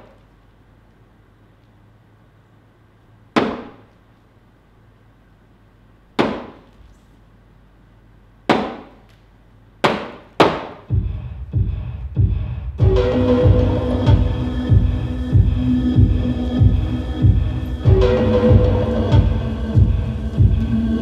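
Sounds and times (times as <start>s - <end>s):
beat-driven music: 10.9s - 21.0s.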